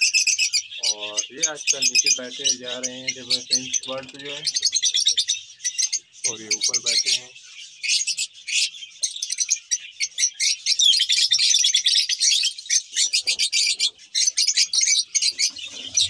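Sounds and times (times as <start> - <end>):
lovebirds chirping shrilly: 0.0 - 16.0.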